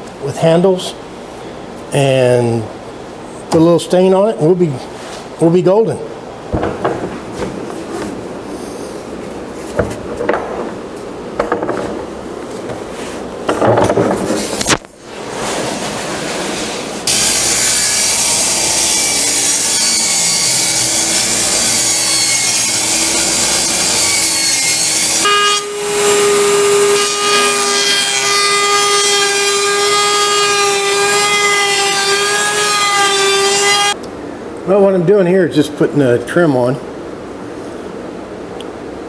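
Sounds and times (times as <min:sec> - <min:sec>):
table saw ripping a board: 0:14.0 - 0:34.0
table saw motor high whine: 0:17.1 - 0:34.0.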